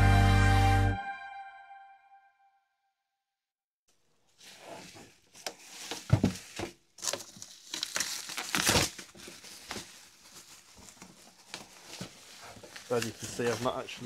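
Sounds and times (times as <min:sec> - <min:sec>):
bubble wrap crinkling: 0:04.2 - 0:14.0.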